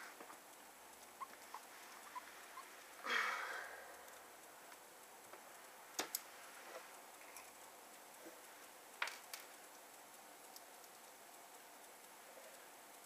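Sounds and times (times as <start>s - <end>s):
sharp clicks: 0.0s - 3.0s, 3.9s - 6.3s, 6.9s - 13.0s
screwdriver ticking: 6.9s - 13.0s.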